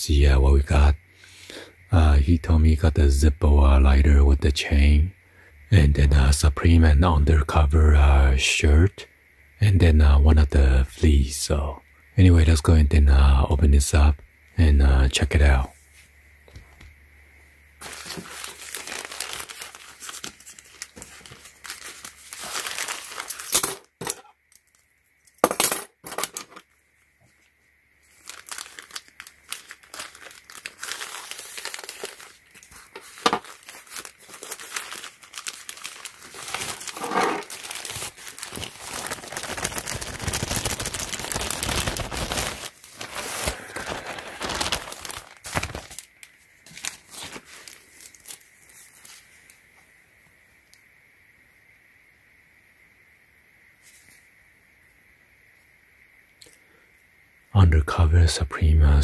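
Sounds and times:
plastic bags crinkling: 17.8 - 23.9, 28.1 - 49.2.

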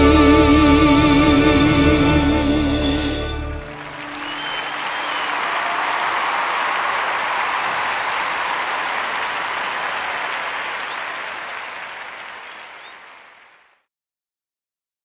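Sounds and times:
large audience applauding: 3.4 - 13.8.

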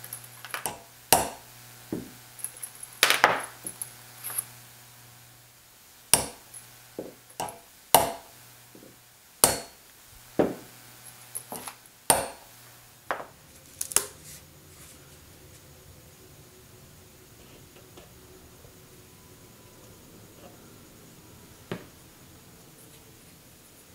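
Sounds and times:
hammer tapping steel punches: 0.5 - 2.2, 6.1 - 9.8, 11.4 - 12.5.

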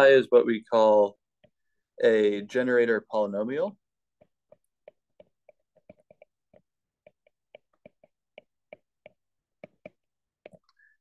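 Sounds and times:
stylus tapping on glass screen: 4.1 - 10.8.

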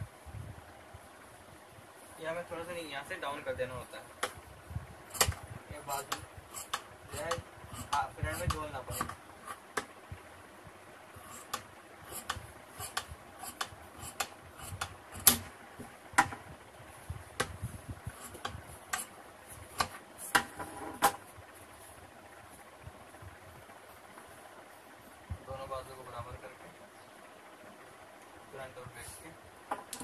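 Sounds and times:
scissors cutting fabric: 5.2 - 9.6, 11.3 - 15.4.

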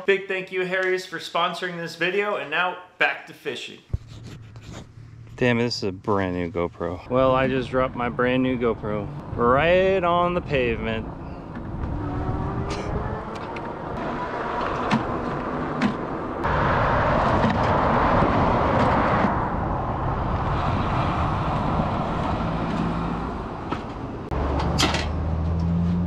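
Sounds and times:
car passing: 4.8 - 26.0
wind rush: 8.8 - 24.4.

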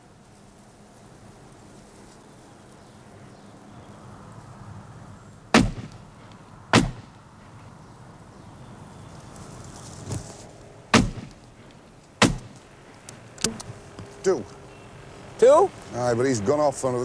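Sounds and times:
shotgun shots: 5.5 - 6.0, 6.7 - 7.1, 10.9 - 11.4, 12.2 - 12.6.

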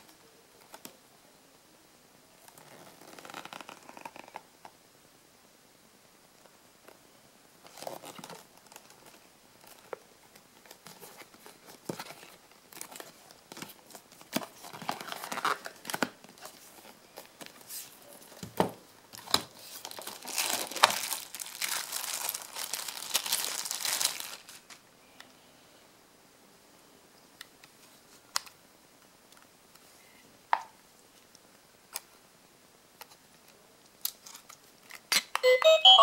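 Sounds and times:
plastic wrapping crinkling: 7.6 - 10.0, 10.6 - 24.8.

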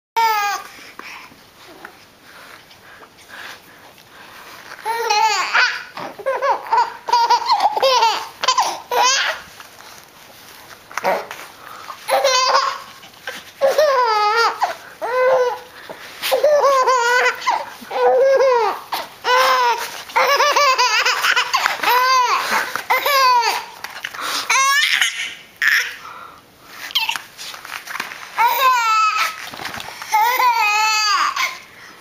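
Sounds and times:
baby giggling: 4.9 - 9.4, 12.1 - 13.0, 16.3 - 23.8.

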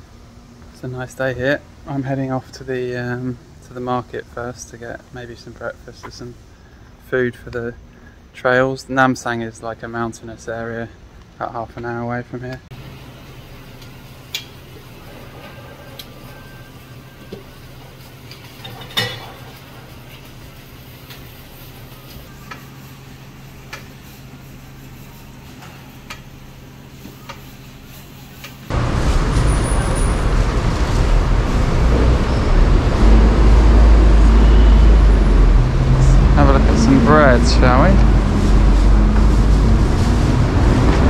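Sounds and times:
loud low rumbling: 28.7 - 41.0.

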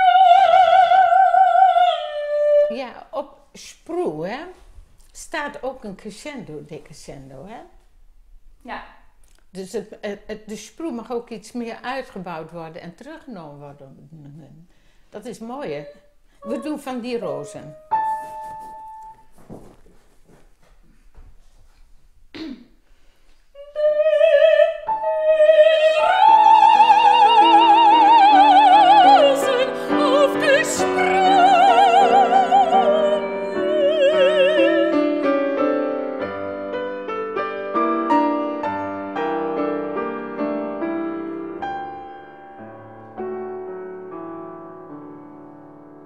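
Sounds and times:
woman singing with vibrato: 0.0 - 3.3, 15.6 - 17.8, 23.5 - 35.2
grand piano: 15.2 - 20.2, 23.6 - 46.0.

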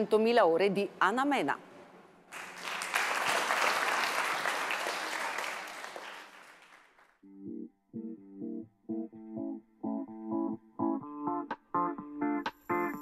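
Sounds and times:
audience applauding: 2.3 - 7.2
plucked guitar chords: 7.2 - 13.0.

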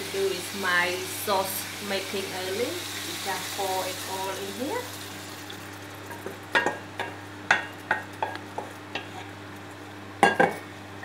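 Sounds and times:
faint sizzle: 0.0 - 11.0
wooden spatula tapping a pan: 6.2 - 8.7.

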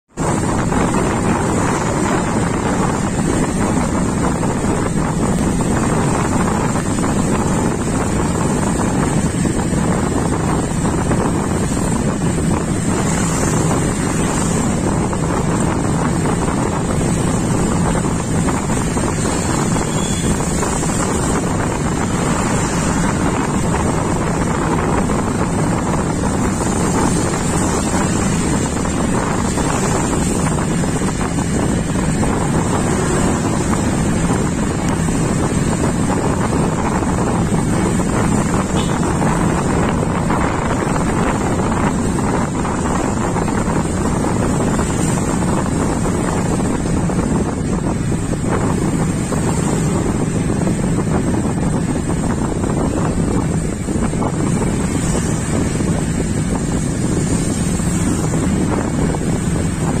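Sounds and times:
traffic on wet road: 0.0 - 60.0.

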